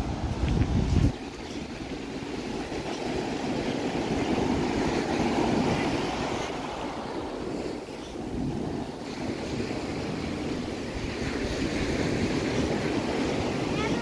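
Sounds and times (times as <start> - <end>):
ocean surf breaking on shore: 0.0 - 14.0
wind on microphone: 0.0 - 14.0.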